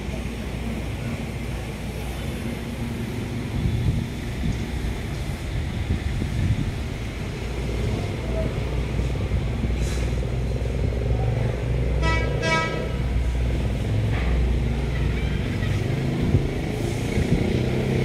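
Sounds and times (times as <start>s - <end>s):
road traffic rumble: 0.0s - 18.0s
vehicle horn honks: 12.0s - 13.0s.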